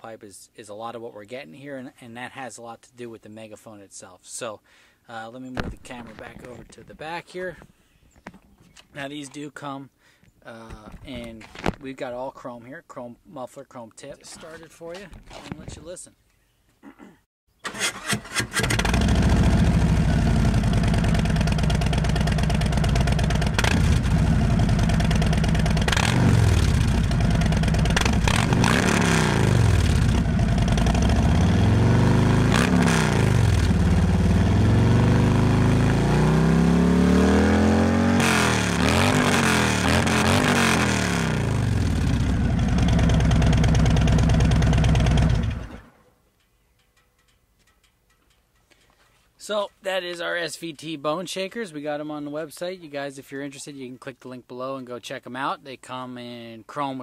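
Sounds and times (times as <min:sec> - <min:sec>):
motorcycle starter cranking: 0:17.6 - 0:28.6
motorcycle engine revving: 0:18.0 - 0:45.9
motorcycle engine idling: 0:19.0 - 0:28.5, 0:29.6 - 0:32.5, 0:41.6 - 0:45.8.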